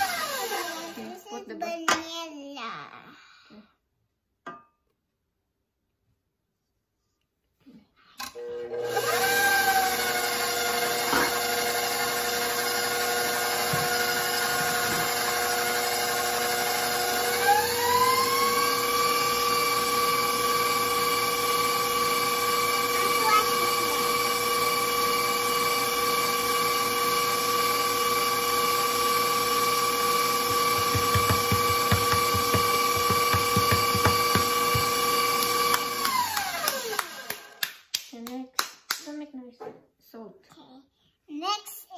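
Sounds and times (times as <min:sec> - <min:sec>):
stand mixer motor whine: 0:00.0 - 0:01.1, 0:08.4 - 0:37.6
whisk beating batter: 0:10.8 - 0:37.1.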